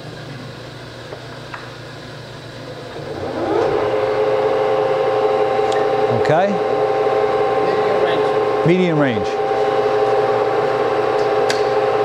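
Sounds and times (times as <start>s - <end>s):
lathe spindle whine: 2.8s - 12.0s.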